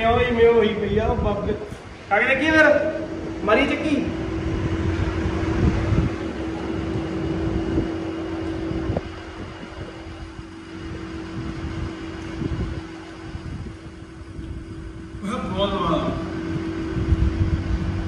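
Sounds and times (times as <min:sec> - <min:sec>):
motor hum: 0:00.0 - 0:18.0.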